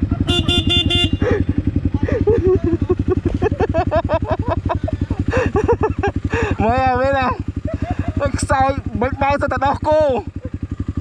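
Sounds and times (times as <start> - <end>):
dirt bike engine idling: 0.0 - 11.0.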